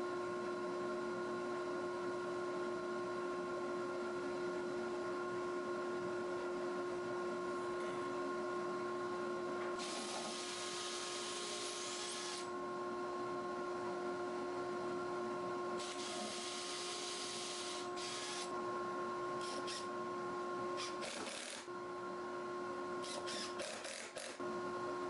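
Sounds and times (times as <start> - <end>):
steady hum: 7.3 - 23.7
cordless drill boring plywood: 9.8 - 12.5, 15.8 - 18.5, 19.4 - 19.9, 20.8 - 21.7, 23.0 - 24.4.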